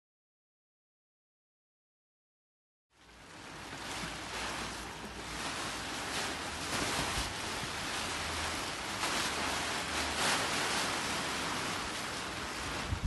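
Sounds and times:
plastic tarpaulins rustling: 3.0s - 13.0s.

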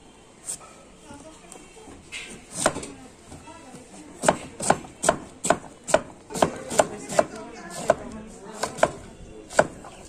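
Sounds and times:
blade chopping fruit on wood: 2.3s - 3.0s, 4.2s - 10.0s.

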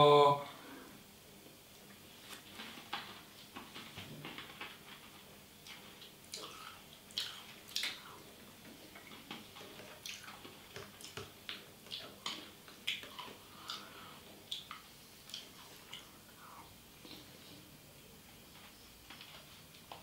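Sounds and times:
lip-smacking: 5.6s - 16.4s.

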